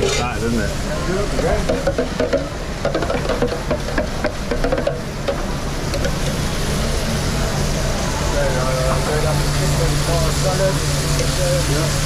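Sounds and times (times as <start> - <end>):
pans and utensils clinking: 0.0 - 0.6, 1.2 - 6.4.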